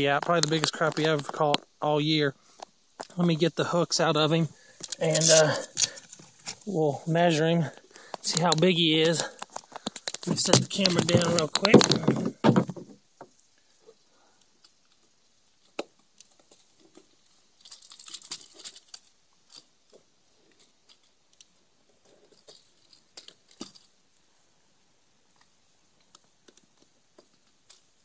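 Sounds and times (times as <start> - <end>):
crinkly rustle: 4.6 - 6.8, 7.7 - 12.4, 14.6 - 24.5
clicks and taps of handling: 8.1 - 12.9.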